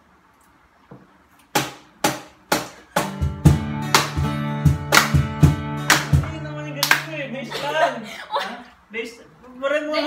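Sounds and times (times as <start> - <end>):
acoustic guitar strumming: 2.9 - 7.7.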